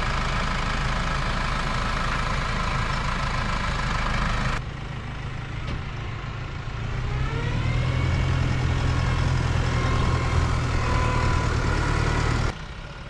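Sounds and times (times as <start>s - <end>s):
tractor diesel engine running: 0.0s - 13.0s
rising engine whine: 4.0s - 12.6s.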